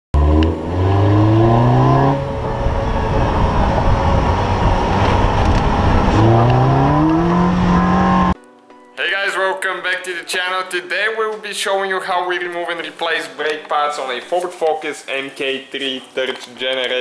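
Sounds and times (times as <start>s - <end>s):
car engine accelerating: 0.2s - 8.4s
road and wind noise: 0.2s - 8.4s.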